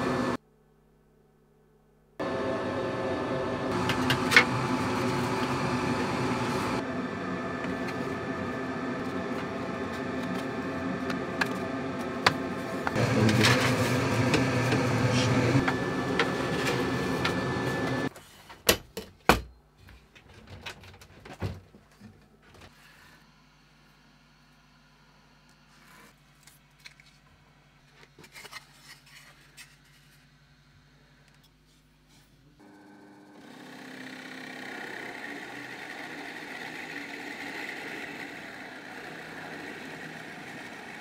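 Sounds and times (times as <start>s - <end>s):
laser engraver humming: 2.2s - 18.1s.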